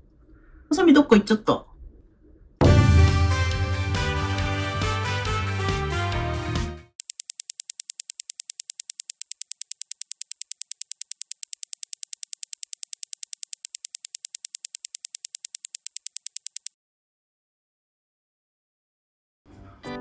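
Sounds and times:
background music: 2.6 - 6.9
rapid high-pitched timer ticking: 7.0 - 16.7.

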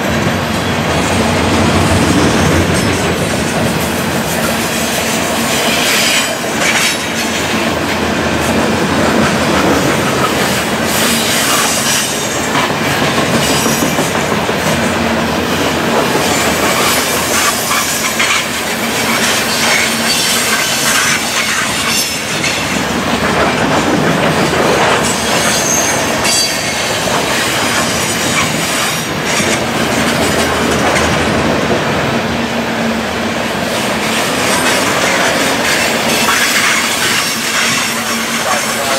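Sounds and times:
freight train rumbling past: 0.0 - 38.9
high wheel squeal: 25.0 - 27.0.

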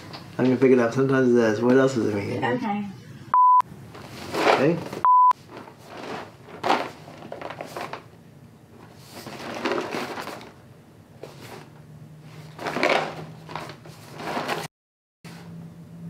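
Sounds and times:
cardboard box rustling: 4.0 - 8.0, 8.8 - 10.5, 12.4 - 14.7.

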